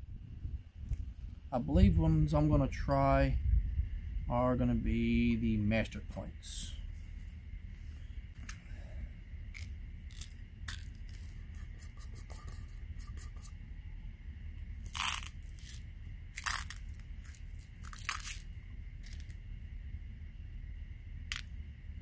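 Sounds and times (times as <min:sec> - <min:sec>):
pellets rattling in a tin: 0:16.4 - 0:19.4.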